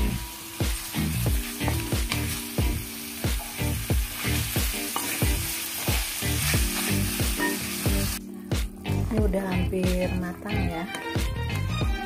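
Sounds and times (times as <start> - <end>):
chicken sizzling in oil: 0.0 - 8.2
background music: 0.0 - 12.0.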